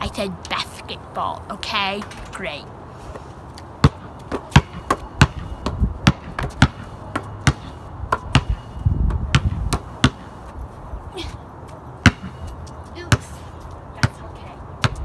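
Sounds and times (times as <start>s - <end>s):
basketball bouncing on concrete: 3.8s - 10.4s, 12.0s - 15.0s.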